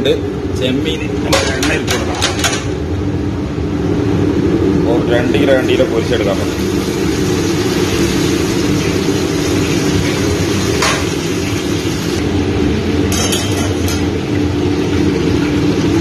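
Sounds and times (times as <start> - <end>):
gas burner roar: 0.0 - 16.0
oil frying sizzle: 5.7 - 16.0.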